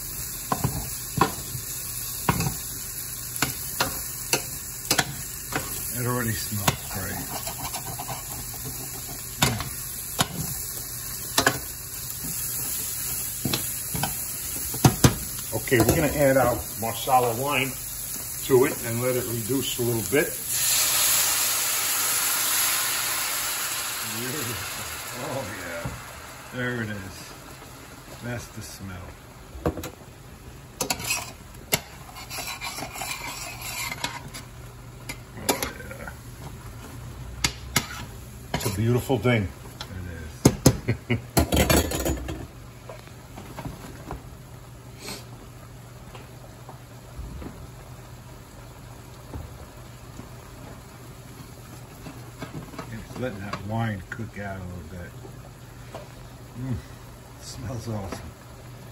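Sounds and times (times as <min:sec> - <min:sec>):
mushrooms sizzling in a pan: 0:00.0 - 0:58.9
metal spoon scraping a pan: 0:06.7 - 0:09.6, 0:30.8 - 0:34.5, 0:37.7 - 0:38.8.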